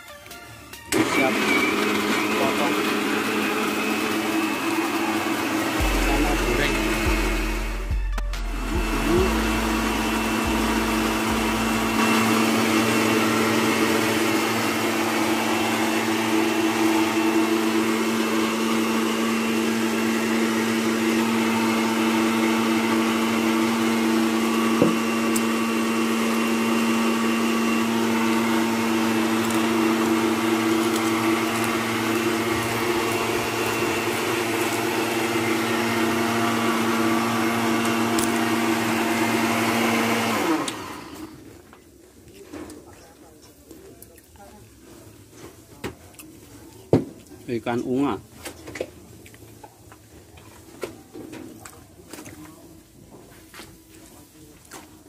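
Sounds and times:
blender motor whine: 0:00.9 - 0:41.5.

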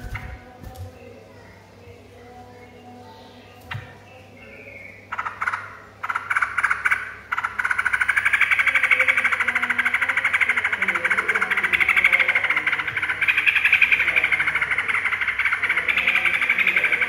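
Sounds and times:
bird rattling chatter: 0:05.1 - 0:17.0.

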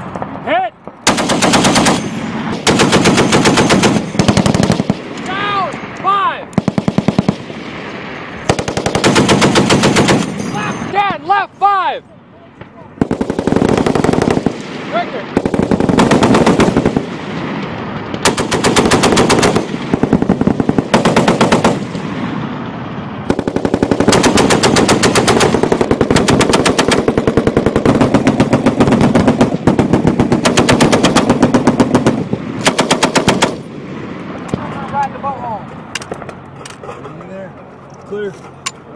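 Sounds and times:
machine guns firing bursts: 0:01.1 - 0:05.1, 0:06.6 - 0:07.5, 0:08.4 - 0:10.4, 0:13.0 - 0:14.6, 0:15.4 - 0:17.2, 0:18.2 - 0:22.0, 0:23.3 - 0:33.7.

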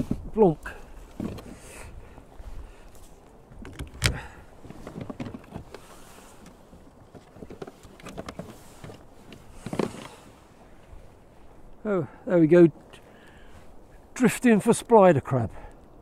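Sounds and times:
fishing tackle knocks and rustles: 0:00.0 - 0:11.1.

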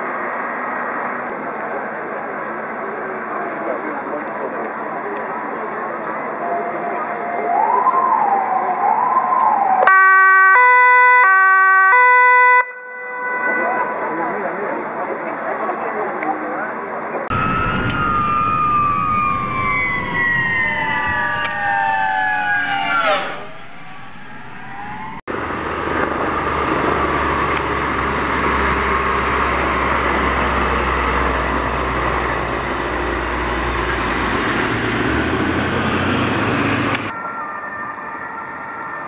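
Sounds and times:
fire truck engine passing: 0:00.0 - 0:16.1, 0:16.8 - 0:39.0
road noise: 0:00.0 - 0:39.0
fire truck siren falling in pitch: 0:06.4 - 0:14.4, 0:17.3 - 0:39.0.

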